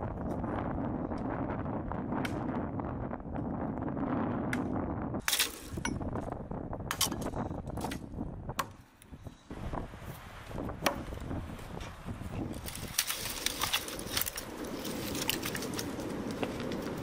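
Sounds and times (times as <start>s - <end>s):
branches cracking: 5.2s - 5.8s, 12.4s - 17.0s
sticks rustling: 5.2s - 5.8s, 10.0s - 17.0s.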